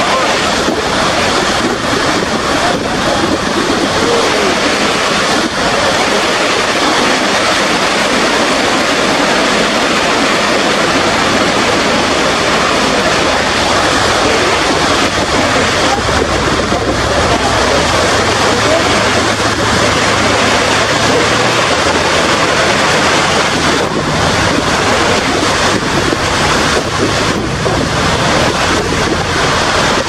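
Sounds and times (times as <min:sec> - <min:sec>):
waterfall rushing onto rocks: 0:00.0 - 0:30.0.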